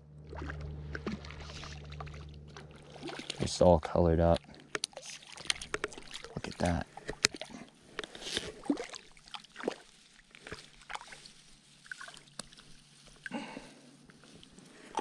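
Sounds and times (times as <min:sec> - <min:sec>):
water sloshing at shoreline: 0:00.1 - 0:15.0
rustling in grass: 0:08.1 - 0:14.9.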